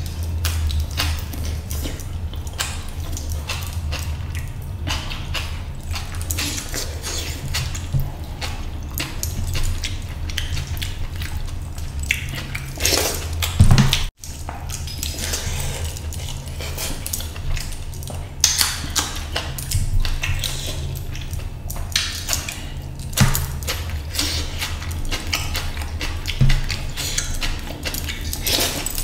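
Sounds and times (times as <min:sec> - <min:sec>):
wet mouth smacks and chewing: 0:00.0 - 0:29.0.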